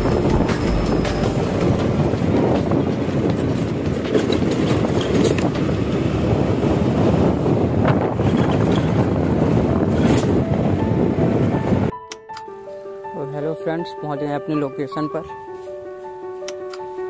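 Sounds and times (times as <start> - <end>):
motorcycle running on road: 0.0 - 11.9
wind buffeting microphone: 0.0 - 12.0.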